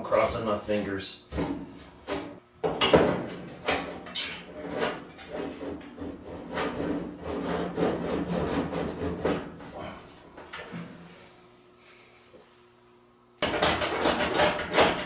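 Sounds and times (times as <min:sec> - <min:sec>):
sheet metal scraping: 0:04.1 - 0:09.4.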